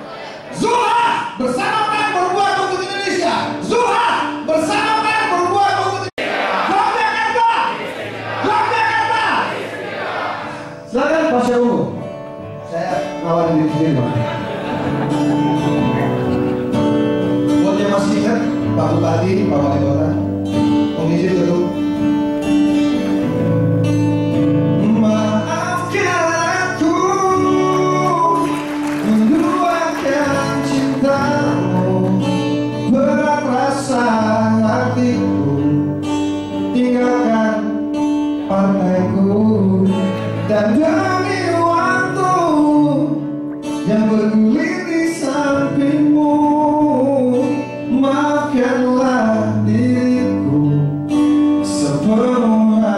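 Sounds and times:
acoustic guitars: 0.0 - 52.9
man singing into a microphone: 17.5 - 21.9, 24.7 - 52.9.

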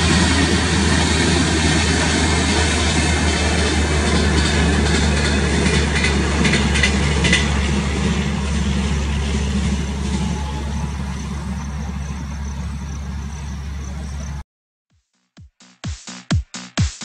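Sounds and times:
train wheels rumbling on rail: 0.0 - 14.4
wheel clacks: 3.3 - 10.4
low power car hum: 4.8 - 14.4.

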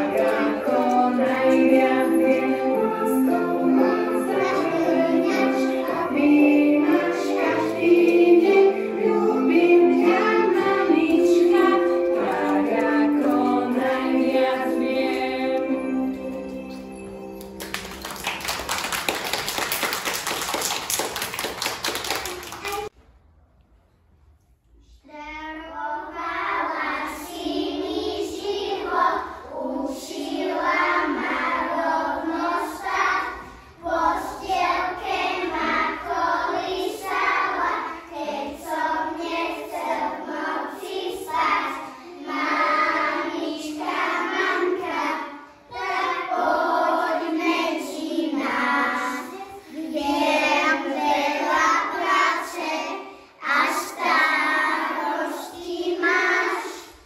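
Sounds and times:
children singing in unison: 0.0 - 17.2, 25.6 - 57.0.

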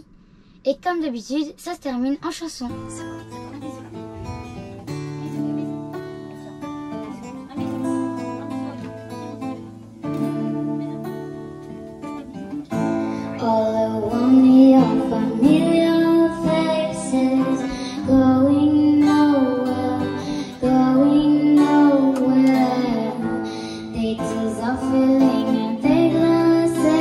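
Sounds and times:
acoustic guitars strummed: 2.6 - 27.0
girl singing into microphone: 10.6 - 27.0.

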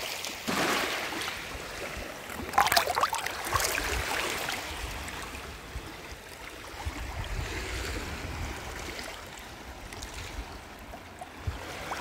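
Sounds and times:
water lapping over pebbles: 0.0 - 5.4
water splashing and trickling: 0.0 - 5.5
wind rumble on microphone: 3.5 - 12.0.

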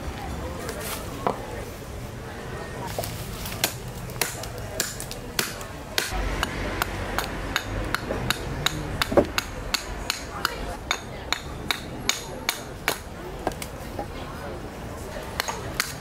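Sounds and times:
axe chopping wood: 3.6 - 13.6.

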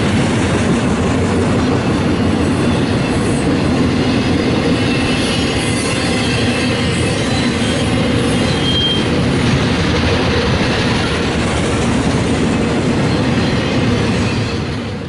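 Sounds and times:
train wheels rolling on rail: 0.0 - 15.0
high wheel squeal: 2.4 - 9.3, 12.9 - 15.0.

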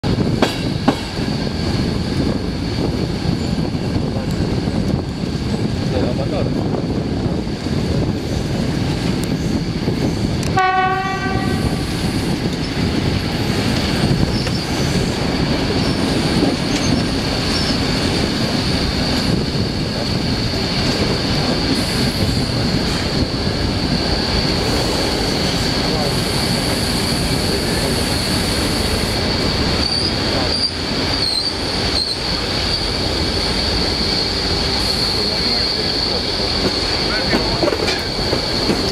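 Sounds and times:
train wheels rumbling on rail: 0.0 - 38.9
train horn blast: 10.5 - 11.9
high-pitched wheel squeal: 29.8 - 32.9.

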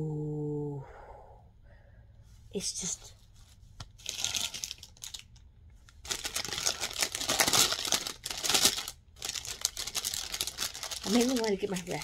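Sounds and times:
plastic packaging crinkling: 3.8 - 12.0.

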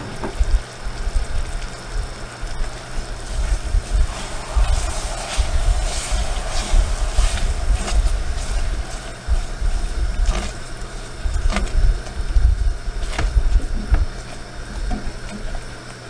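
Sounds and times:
spatula scraping saucepan: 3.3 - 11.1.

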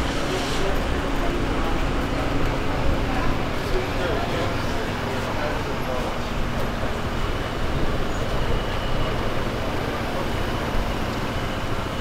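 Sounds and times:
faint voices: 0.0 - 12.0
vehicle engine running: 0.0 - 12.0.

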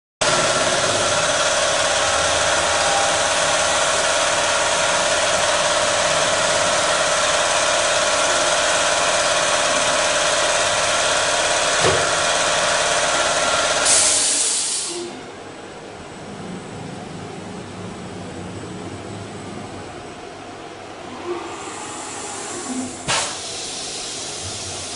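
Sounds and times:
rushing machine noise: 0.2 - 14.0
cnc router spindle whine: 0.3 - 10.8
brief loud hiss: 13.8 - 15.2, 23.1 - 24.2.

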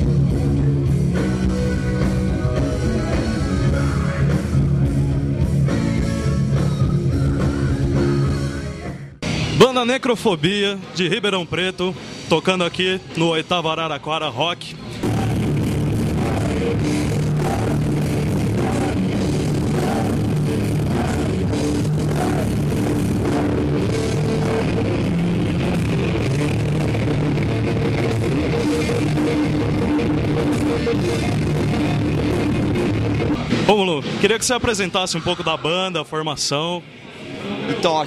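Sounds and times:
metal band playing live: 0.0 - 8.6, 14.9 - 35.3.

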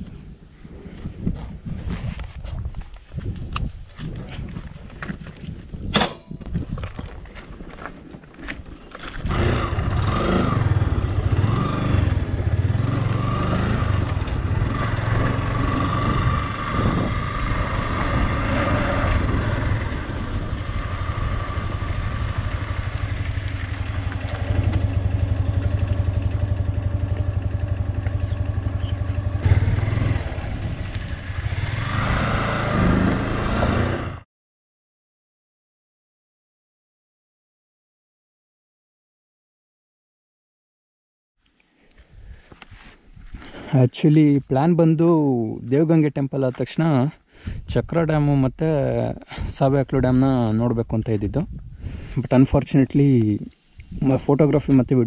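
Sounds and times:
motorcycle engine running: 9.1 - 34.2.

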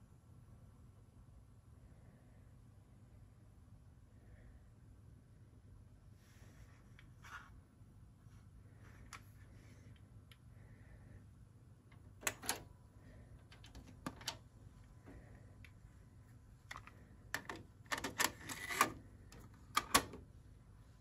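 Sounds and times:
cassette door clicking shut: 12.2 - 12.7, 13.5 - 14.4, 17.4 - 20.2
cassette door opening: 12.2 - 12.7, 13.4 - 14.4, 17.4 - 20.2
cassette clattering into holder: 13.6 - 14.4.

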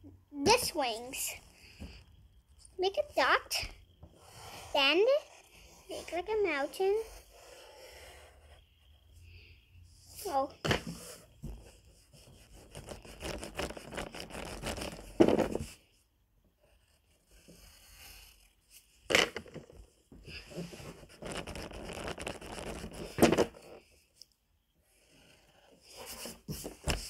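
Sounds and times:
pencil scratching on paper: 4.1 - 9.0, 10.2 - 15.2, 16.6 - 18.5, 20.3 - 23.8, 24.9 - 27.0.

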